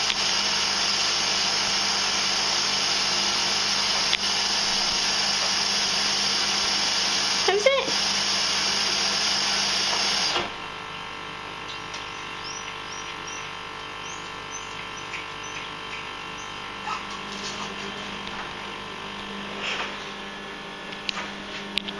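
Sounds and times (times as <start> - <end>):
washing machine running: 0.0 - 21.9
small dog whimpering: 16.4 - 18.1.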